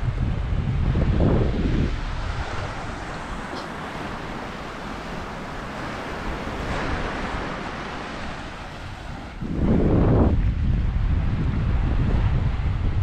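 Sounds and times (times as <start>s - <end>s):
surf washing onto beach: 0.0s - 13.0s.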